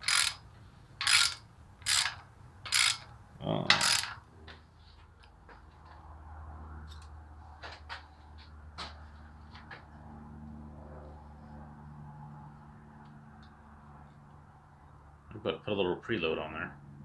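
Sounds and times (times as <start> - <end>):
ratchet wrench clicking: 0.0 - 0.4, 1.0 - 4.2.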